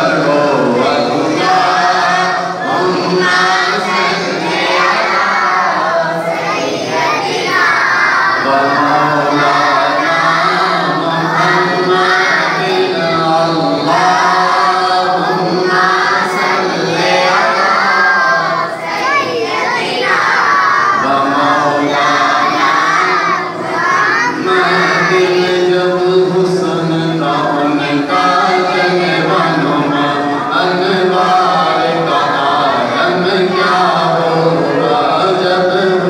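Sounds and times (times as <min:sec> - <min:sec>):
man singing into microphone: 0:00.0 - 0:06.6, 0:08.3 - 0:19.1, 0:20.9 - 0:23.6, 0:24.2 - 0:36.0
other voices singing: 0:00.0 - 0:36.0.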